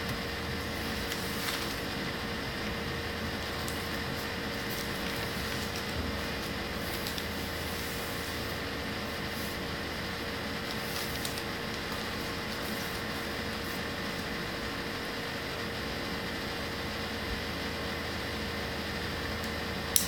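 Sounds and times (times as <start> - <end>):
faint hum: 0.0 - 20.0
crepe paper rustling: 0.6 - 2.2, 3.4 - 14.4.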